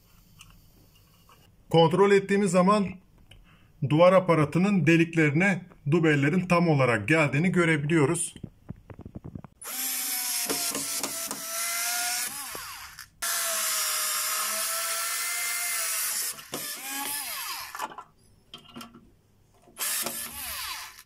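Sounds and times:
electric screwdriver motor whining: 0:09.6 - 0:17.9, 0:19.8 - 0:21.0.

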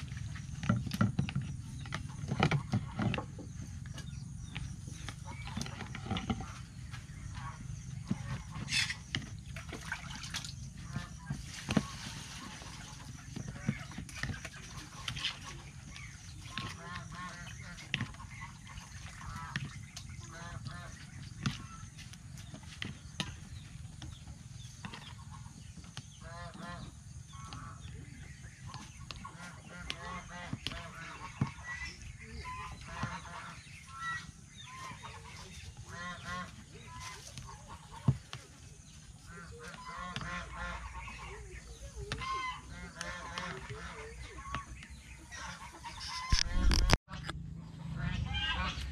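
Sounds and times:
waterfowl calling: 0:02.0 - 0:22.1, 0:24.8 - 0:48.9.

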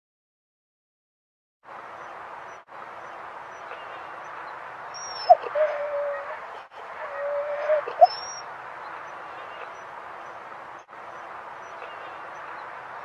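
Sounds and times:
background noise: 0:01.6 - 0:13.0
dog whining: 0:05.0 - 0:06.4, 0:07.0 - 0:08.4.

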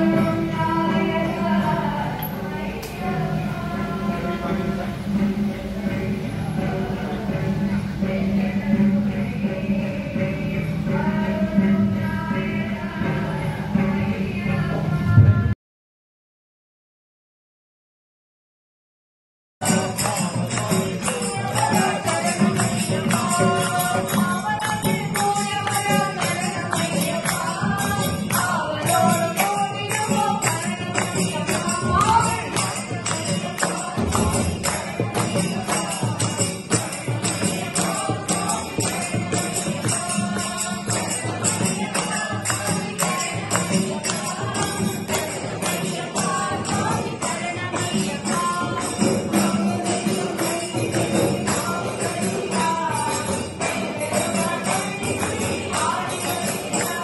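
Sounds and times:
group singing over loudspeaker: 0:00.0 - 0:15.6, 0:19.6 - 0:57.0
tambourine jingling: 0:19.6 - 0:57.0.

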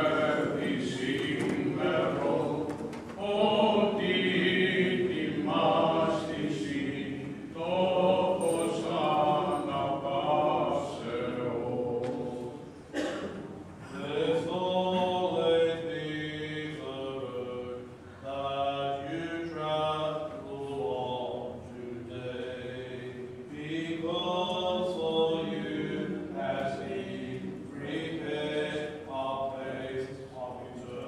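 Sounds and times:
men chanting unaccompanied: 0:00.0 - 0:12.6.

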